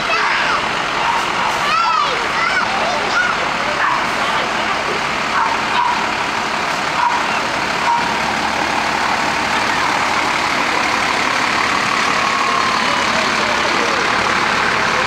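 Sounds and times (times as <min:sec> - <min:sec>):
trucks driving slowly past: 0:00.0 - 0:15.0.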